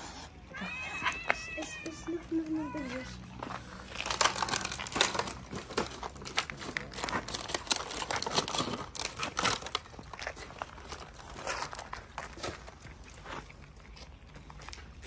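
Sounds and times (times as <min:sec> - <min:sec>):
plastic trays crinkling and clicking: 0:03.9 - 0:12.8.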